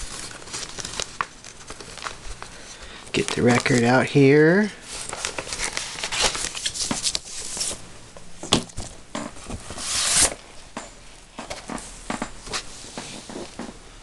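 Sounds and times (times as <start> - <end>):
vinyl record handling rustles: 0.0 - 10.7, 11.3 - 13.8
record sliding from sleeve: 9.5 - 10.4.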